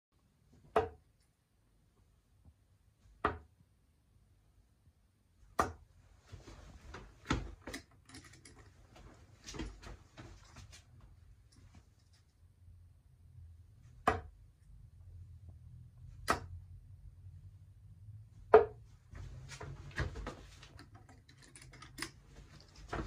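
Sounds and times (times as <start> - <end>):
darts thudding into dartboard: 0.6 - 1.0, 3.2 - 3.5, 5.5 - 5.8, 14.0 - 14.4, 16.2 - 16.6, 18.5 - 18.8.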